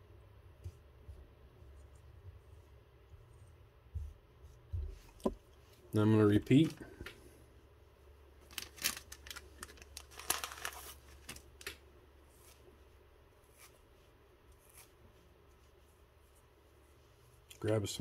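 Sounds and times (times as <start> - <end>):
materials crinkling and rustling: 8.4 - 12.7.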